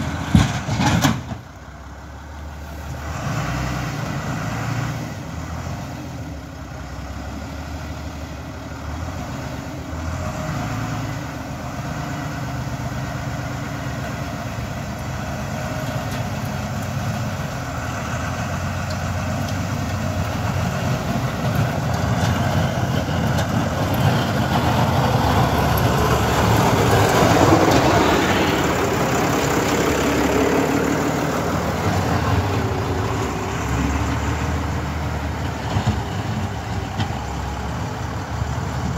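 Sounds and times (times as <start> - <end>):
tractor diesel engine running: 0.0 - 38.9
snow scraping under plow blade: 15.2 - 37.8.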